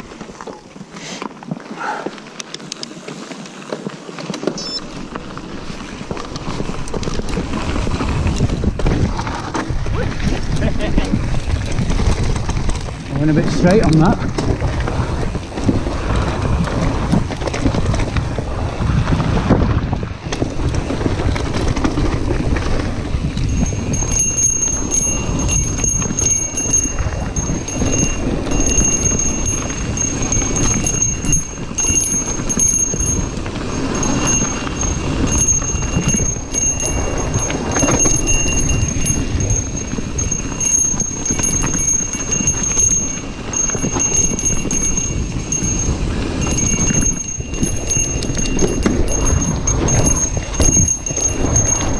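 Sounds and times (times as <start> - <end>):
bike rattling over bumps: 0.0 - 51.9
tyres rolling over stones: 0.0 - 51.9.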